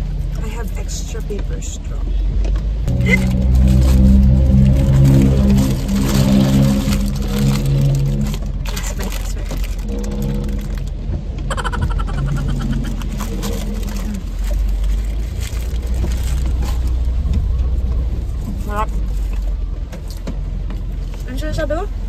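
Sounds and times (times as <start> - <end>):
low car rumble: 0.0 - 22.0
paper crinkling and tearing: 2.9 - 10.9, 12.3 - 17.2.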